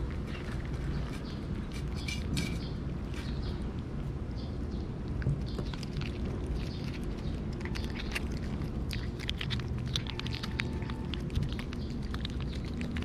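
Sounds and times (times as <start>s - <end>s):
cat licking and lapping: 5.0s - 13.0s.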